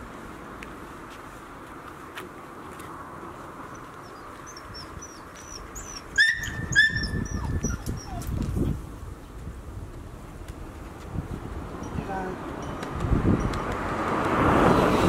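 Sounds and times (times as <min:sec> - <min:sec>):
puppy yelping: 0:03.8 - 0:08.4.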